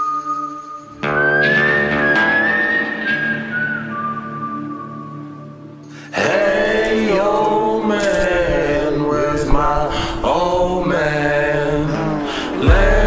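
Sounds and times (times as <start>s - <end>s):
person singing long sliding notes: 6.0s - 13.0s.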